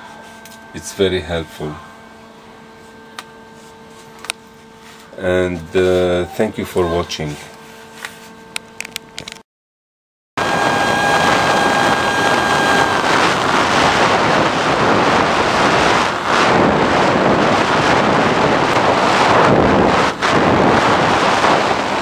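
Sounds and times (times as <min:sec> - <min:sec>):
electric motor whine: 0:00.0 - 0:09.4, 0:10.4 - 0:22.0
wind noise on microphone: 0:10.4 - 0:22.0.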